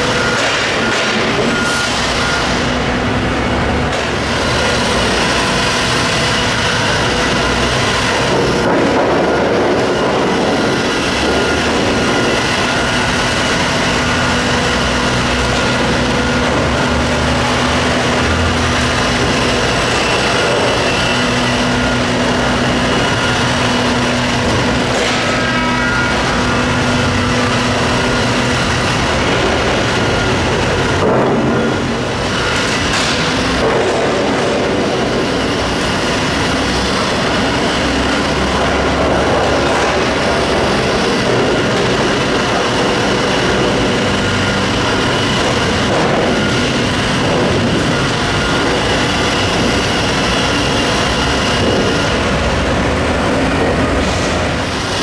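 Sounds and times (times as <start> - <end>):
diesel engine running: 0.0 - 55.0
steel tracks clattering on concrete: 28.3 - 55.0.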